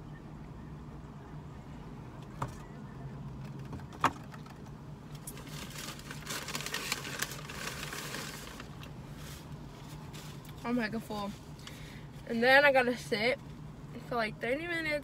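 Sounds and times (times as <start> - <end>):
low steady hum: 0.0 - 15.0
paper bag rustling: 5.3 - 10.4.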